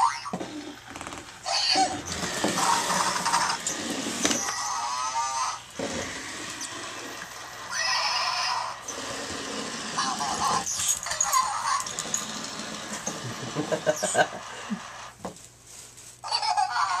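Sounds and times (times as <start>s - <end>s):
toy motor whirring: 0.0s - 15.2s
wheels rattling on plastic: 1.9s - 4.6s.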